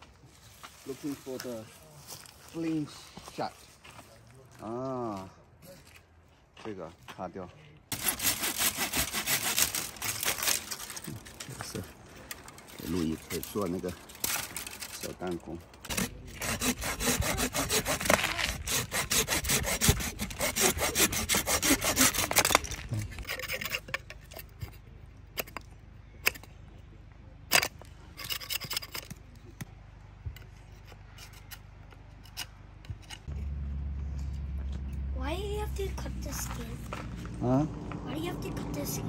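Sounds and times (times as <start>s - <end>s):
saw cutting through branch: 7.9s - 11.8s, 12.6s - 24.7s
knife whittling wood: 15.9s - 24.7s.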